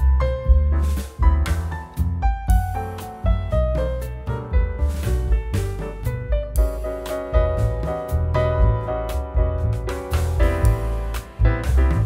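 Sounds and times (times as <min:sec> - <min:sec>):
instrumental music with bass: 0:00.0 - 0:12.0
drum hits: 0:04.6 - 0:12.0.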